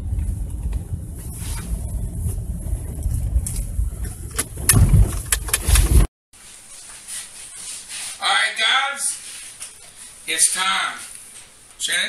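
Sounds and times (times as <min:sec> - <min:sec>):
car cabin rumble: 0:00.0 - 0:06.1
sharp clicks and knocks: 0:03.4 - 0:06.1.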